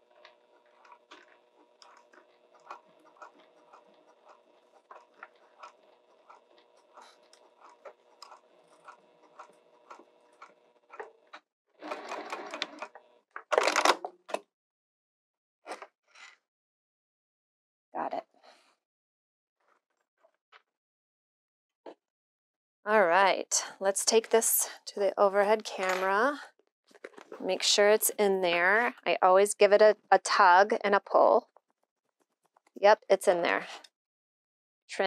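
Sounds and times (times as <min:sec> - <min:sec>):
sewing machine running: 0:00.0 - 0:11.2, 0:11.8 - 0:13.1.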